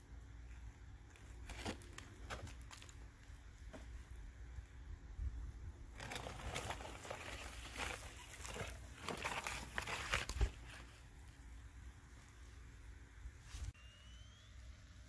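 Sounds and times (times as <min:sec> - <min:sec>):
foil pan crinkling and scraping: 0:01.2 - 0:03.9, 0:05.9 - 0:11.3.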